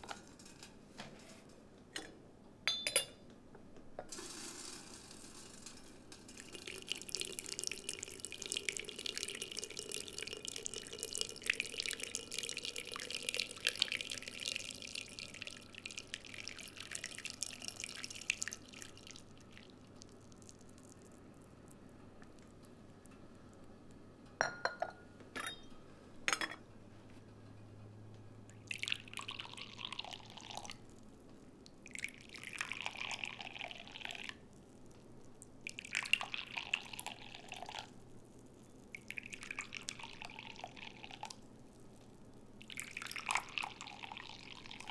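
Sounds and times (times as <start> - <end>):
porcelain clinks: 2.7 - 3.2, 24.4 - 26.6
tea pouring into cups: 4.1 - 24.0, 28.5 - 31.1, 31.8 - 41.9, 42.5 - 44.9.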